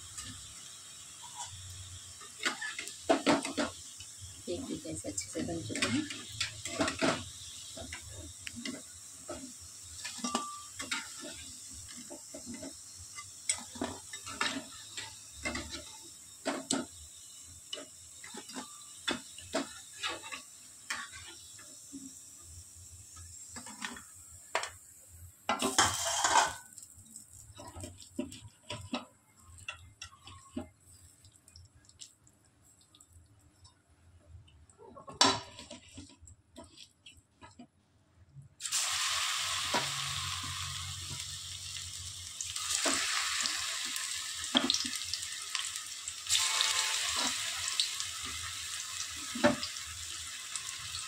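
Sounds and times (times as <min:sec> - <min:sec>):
food sizzling in oil: 0:00.0 - 0:33.7, 0:38.6 - 0:51.0
metal utensil scraping a pan: 0:01.2 - 0:04.0, 0:04.8 - 0:17.0, 0:17.7 - 0:21.7, 0:25.5 - 0:26.7, 0:27.6 - 0:30.8, 0:34.9 - 0:37.6, 0:46.3 - 0:49.6.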